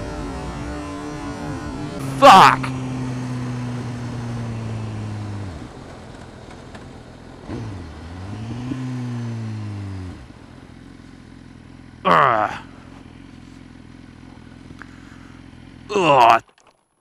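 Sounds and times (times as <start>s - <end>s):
motorcycle engine running: 0.0s - 16.9s.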